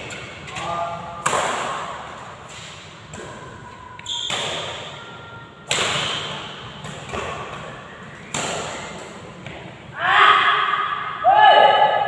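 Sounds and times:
rackets hitting shuttlecock: 0.0 - 5.0, 5.6 - 9.7.

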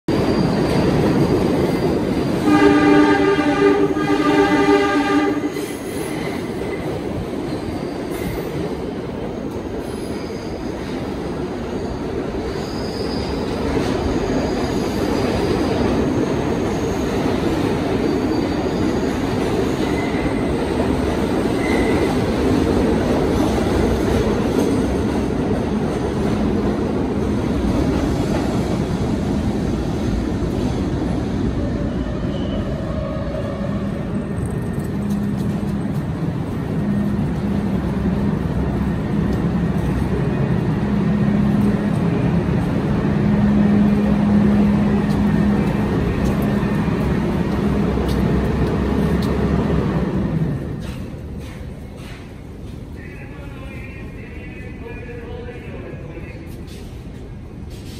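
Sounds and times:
high wheel squeals: 0.1 - 2.4, 5.6 - 8.6, 9.8 - 20.6, 21.5 - 22.3
train wheels rumbling on rail: 0.1 - 57.9.

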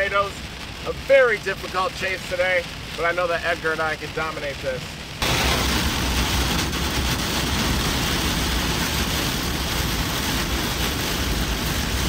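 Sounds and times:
engine and road rumble: 0.0 - 12.0
heavy rain on vehicle roof: 0.0 - 12.0.

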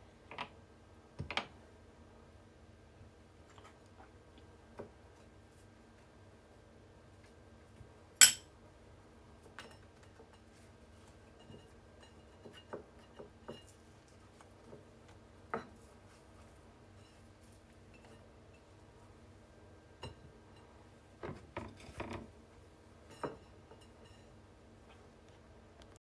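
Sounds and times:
utensils clinking against dishes: 8.2 - 8.4.

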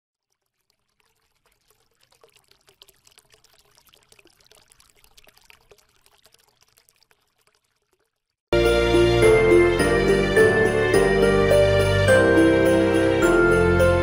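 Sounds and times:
crackling and trickling: 0.1 - 8.5.

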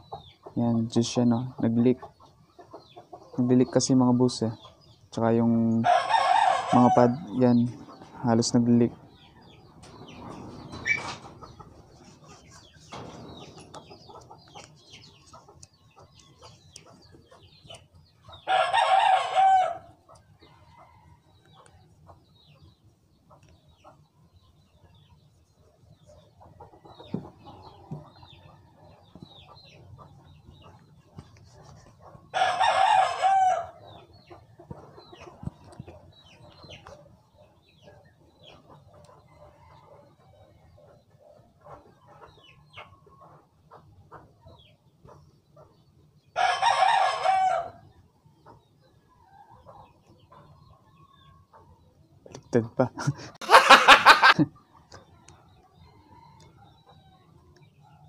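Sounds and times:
rooster crowing: 5.8 - 7.4, 18.5 - 19.9, 32.3 - 33.8, 46.4 - 47.8.

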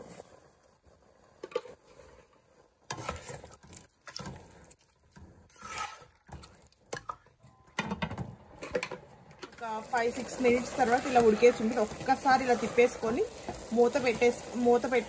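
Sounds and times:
spatula scraping a pot: 2.9 - 3.6, 5.5 - 6.5, 10.3 - 14.2.

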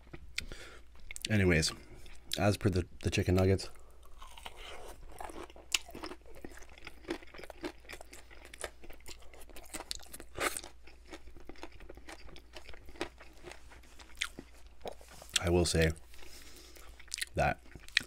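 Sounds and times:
chewing crunchy food: 3.7 - 18.0.

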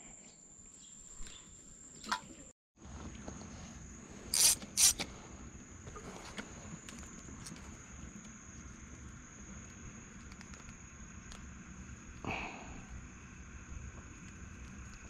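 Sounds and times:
insect drone: 3.0 - 15.0
sharp handling noise: 4.3 - 5.1.

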